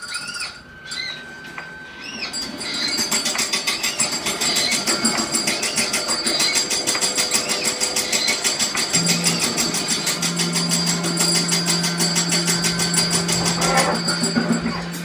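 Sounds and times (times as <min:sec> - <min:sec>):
fast mechanical-sounding pulse: 0:02.0 - 0:15.0
steady low drone: 0:08.9 - 0:15.0.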